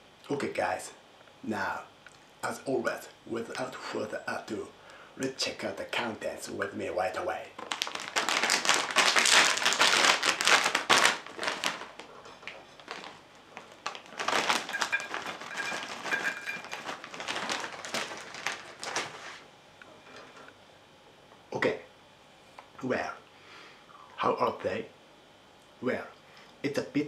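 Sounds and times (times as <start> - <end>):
plastic snack bag crinkling: 7.6 - 19.4
corn puffs poured onto plate: 13.8 - 19.2.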